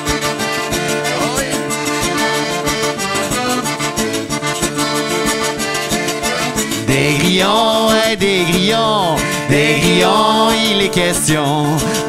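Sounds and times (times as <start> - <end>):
scraped rubboard beat: 0.0 - 11.1
accordion melody: 0.0 - 12.0
strummed acoustic guitar: 0.0 - 12.0.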